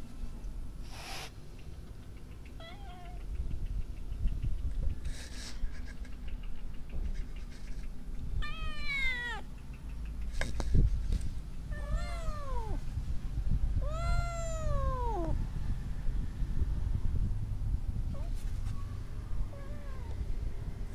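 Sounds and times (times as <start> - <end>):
cat meowing: 2.6 - 3.2, 8.4 - 9.5, 11.7 - 12.8, 13.8 - 15.4, 19.5 - 20.2.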